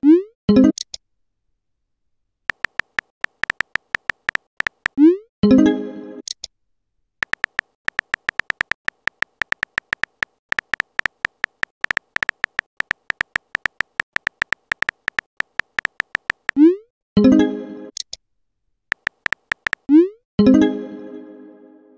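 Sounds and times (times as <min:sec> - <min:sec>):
phone keyboard typing clicks: 0:02.5 - 0:05.0, 0:07.2 - 0:16.6, 0:18.9 - 0:19.9.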